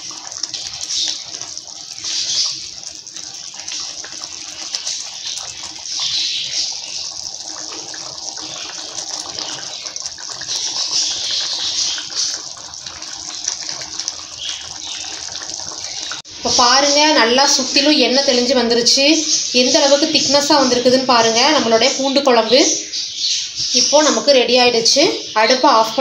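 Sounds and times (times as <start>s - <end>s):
gravy bubbling and sloshing: 0.0s - 26.0s.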